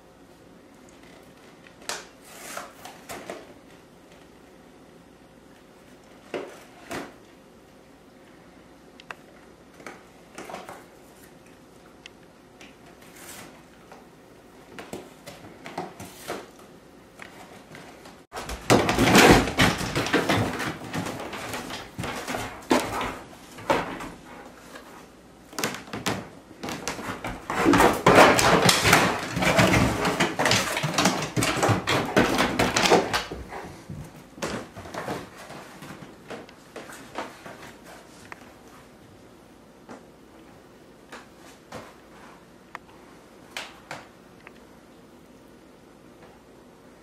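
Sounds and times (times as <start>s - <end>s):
dog ripping cardboard: 18.4s - 33.7s.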